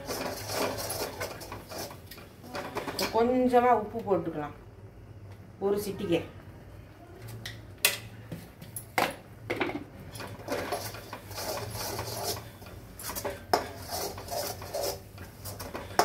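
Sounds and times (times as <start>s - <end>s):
ladle scraping and knocking pan: 0.0s - 3.2s, 9.5s - 16.0s.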